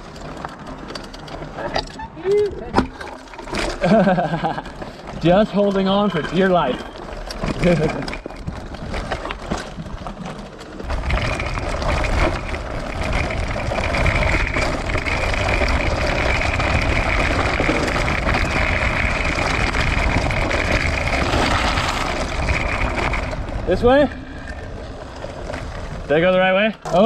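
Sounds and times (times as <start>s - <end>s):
tyres rolling on dirt: 0.0s - 27.0s
wind rumbling on microphone: 7.1s - 26.1s.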